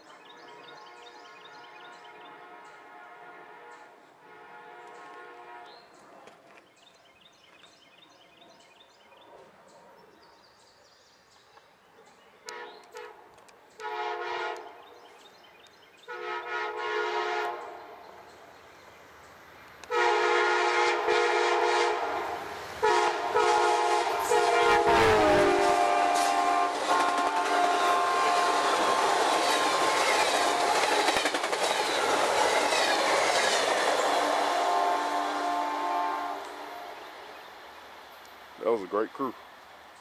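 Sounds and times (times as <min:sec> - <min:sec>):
train air horn blasts: 0:00.9 - 0:06.0, 0:12.4 - 0:14.8, 0:16.0 - 0:18.0, 0:19.9 - 0:29.3, 0:34.2 - 0:37.0.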